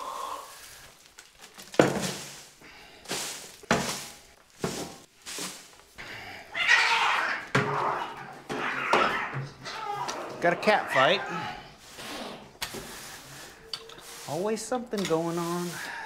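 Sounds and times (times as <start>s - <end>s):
shovel scooping wood shavings: 0.5s - 6.0s, 10.4s - 16.0s
cats fighting: 6.3s - 12.4s.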